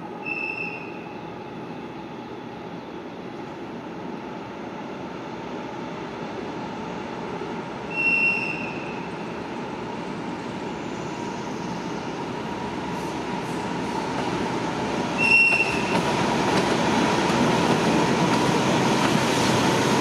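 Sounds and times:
train rolling on track: 0:00.0 - 0:20.0.

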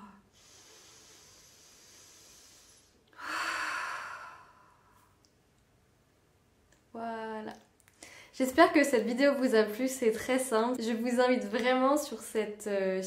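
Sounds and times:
woman breathing deeply: 0:00.2 - 0:05.2.

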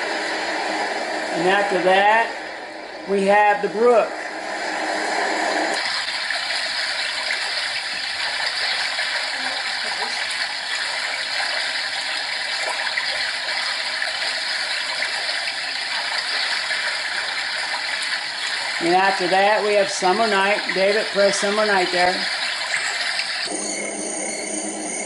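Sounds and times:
running stream water: 0:05.7 - 0:23.5.

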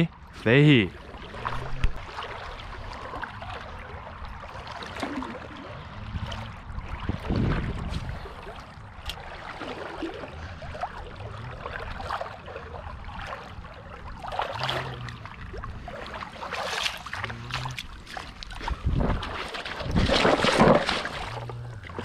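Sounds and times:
boots splashing through water and mud: 0:06.8 - 0:22.0.

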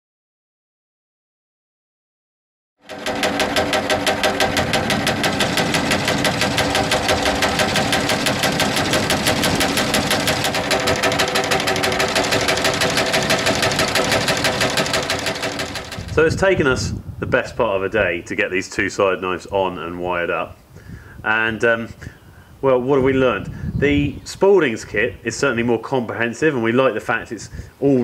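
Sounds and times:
drive motor humming: 0:02.8 - 0:16.5.

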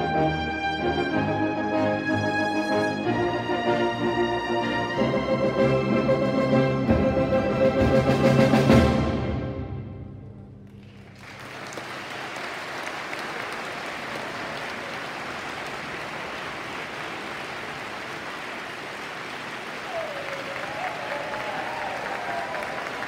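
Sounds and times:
audience applause: 0:10.7 - 0:23.0.

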